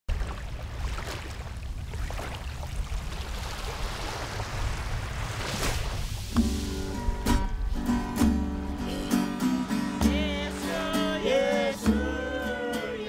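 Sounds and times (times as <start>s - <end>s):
small waves washing on beach: 0.1s - 8.2s.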